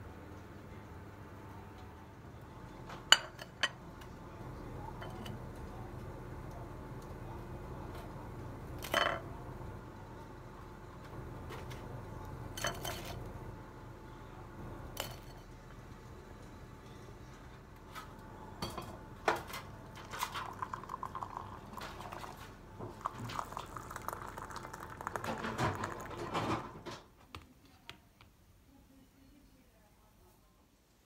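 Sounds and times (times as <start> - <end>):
ceramic plate clinking: 3.1 - 3.8, 8.8 - 9.2, 12.6 - 13.2
liquid pouring into a mug: 19.8 - 26.8.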